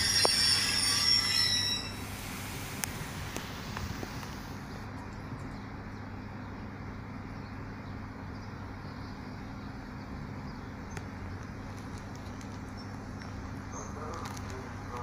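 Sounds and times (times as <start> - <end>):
train squealing: 0.0 - 2.2
constant hum: 0.0 - 15.0
distant traffic rumble: 0.0 - 15.0.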